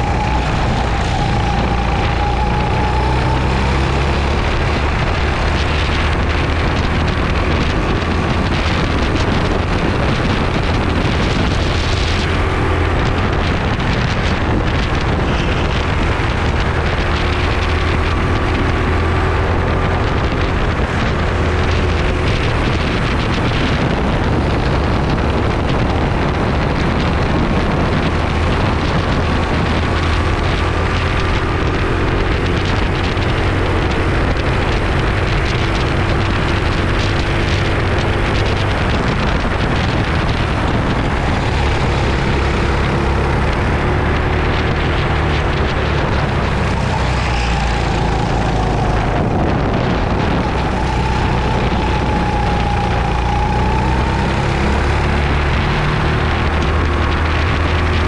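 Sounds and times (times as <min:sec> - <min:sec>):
faint engine whine: 0:00.0 - 0:58.0
go-kart engine running: 0:00.0 - 0:58.0
wind noise: 0:00.0 - 0:58.0.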